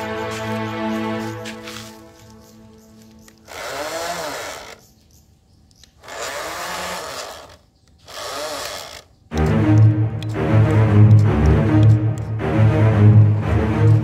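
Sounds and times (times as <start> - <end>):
background music: 0.0 - 3.3, 9.3 - 14.0
small electric motor whirring: 3.2 - 4.9, 6.0 - 9.2.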